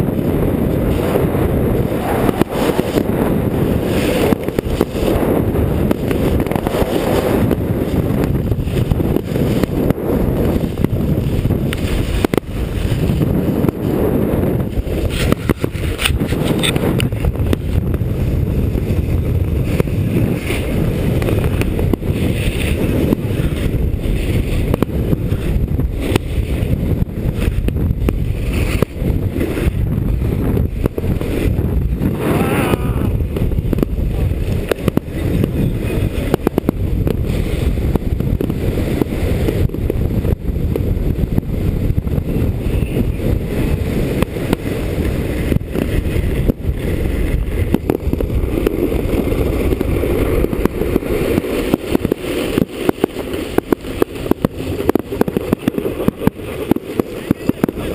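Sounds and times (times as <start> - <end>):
snowboard scraping packed snow: 0.0 - 57.9
wind buffeting microphone: 0.0 - 57.9.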